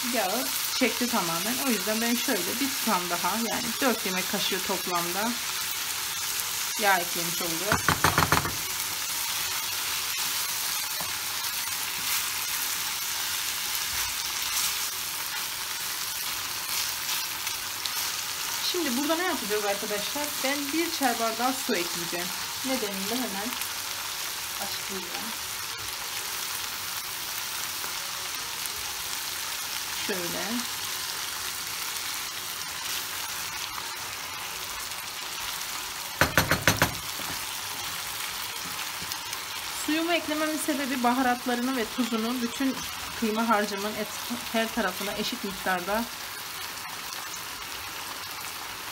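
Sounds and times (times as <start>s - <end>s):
meat sizzling in a pan: 0.0s - 48.9s
wooden spoon knocking pan: 7.7s - 8.7s, 36.2s - 37.4s.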